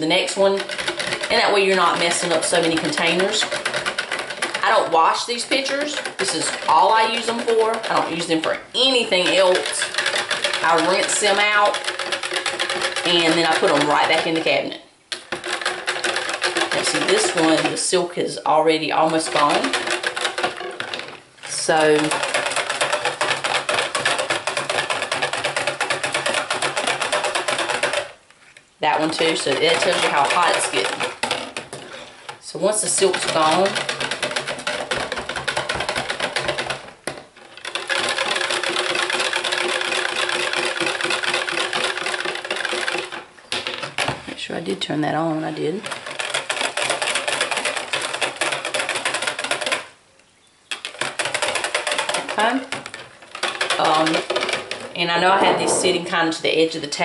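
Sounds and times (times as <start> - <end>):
whisk clattering in plastic pitcher: 0.0 - 28.2, 28.8 - 44.9, 45.7 - 49.9, 50.7 - 57.0.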